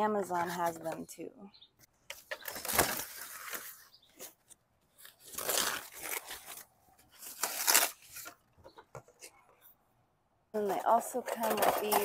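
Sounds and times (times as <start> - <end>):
cardboard and plastic scraping: 2.1 - 9.6, 10.6 - 12.0.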